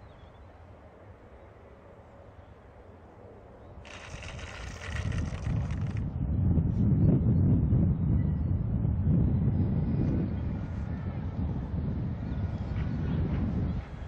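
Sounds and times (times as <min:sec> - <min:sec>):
plane rolling through grass: 0:03.8 - 0:06.0
wind buffeting microphone: 0:03.8 - 0:14.0.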